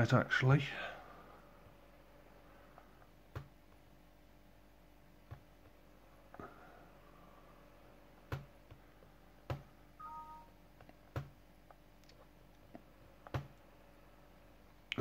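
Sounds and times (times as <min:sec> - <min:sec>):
falling two-note chime: 0:10.0 - 0:10.5.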